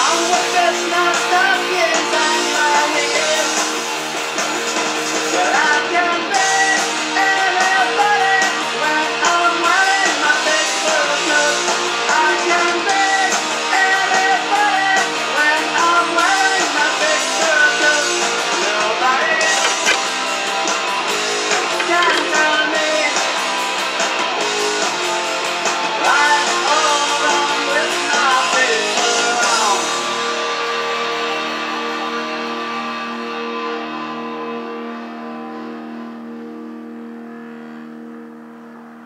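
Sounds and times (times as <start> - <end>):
rock band playing: 17.2 - 33.8.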